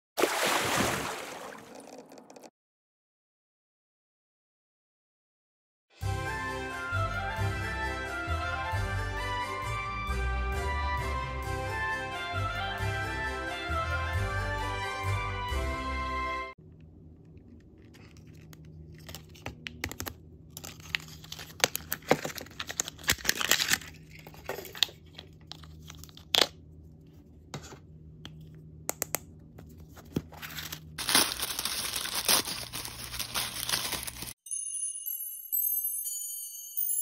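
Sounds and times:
foil wrappers crinkling: 17.8s - 26.4s, 30.1s - 34.4s
toy packaging tearing: 17.8s - 26.6s, 30.3s - 34.4s.

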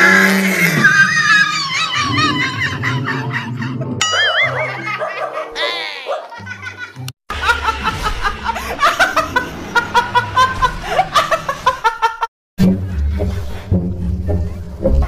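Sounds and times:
woman laughing hard: 4.2s - 12.3s
music: 12.6s - 15.0s.

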